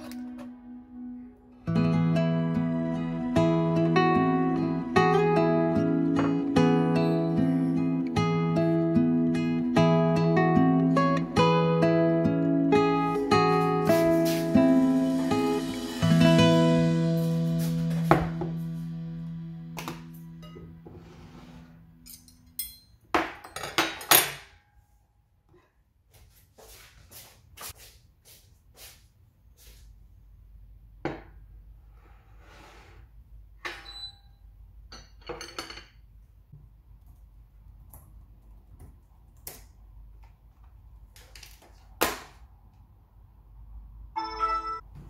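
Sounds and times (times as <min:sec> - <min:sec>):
metal cutlery clattering: 0:22.0 - 0:24.5
short ringing tone: 0:44.2 - 0:44.9.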